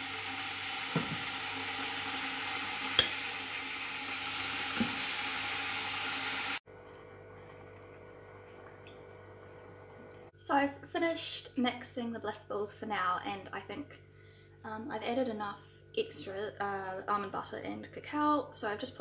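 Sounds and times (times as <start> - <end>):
spoon knocking glass bowl: 3.0 - 3.2.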